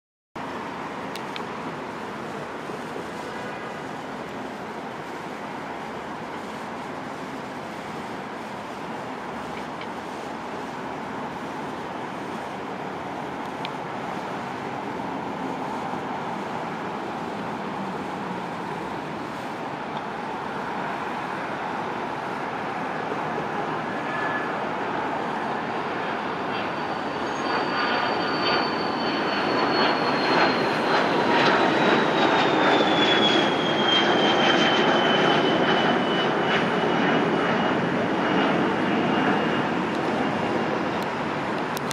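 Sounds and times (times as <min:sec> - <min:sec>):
jet engines at takeoff power: 0:00.4 - 0:41.9
high engine whine falling in pitch: 0:22.9 - 0:41.9.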